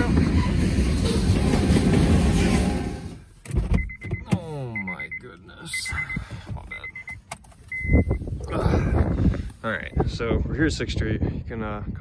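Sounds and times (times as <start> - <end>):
high electronic beeps: 3.8 - 8.2.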